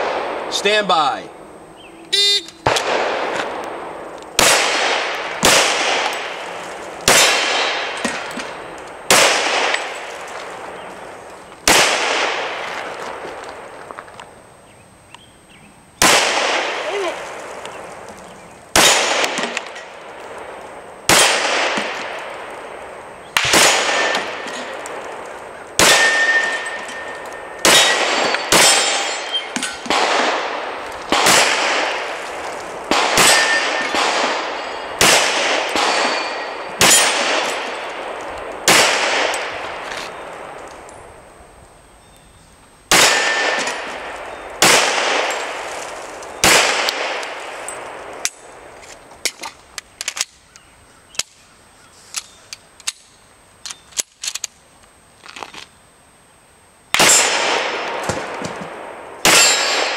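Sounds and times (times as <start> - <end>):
pistol shots: 0.0 - 0.8, 2.2 - 10.8, 11.6 - 13.2, 16.0 - 17.4, 18.7 - 32.2, 32.8 - 40.6, 42.9 - 45.7, 46.4 - 48.5, 56.9 - 59.9
steel target clanging: 25.8 - 30.0, 33.1 - 37.8, 59.3 - 59.9.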